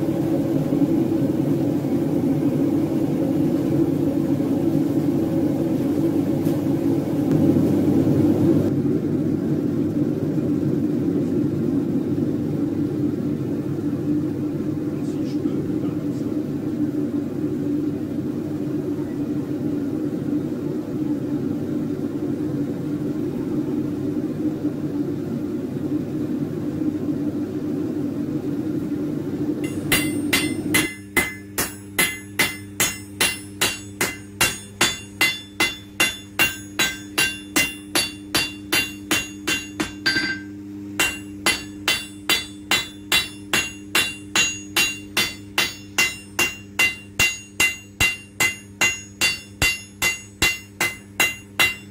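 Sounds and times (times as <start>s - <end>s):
steady low hum: 0.0s - 51.9s
hammer ringing on anvil: 29.6s - 51.9s.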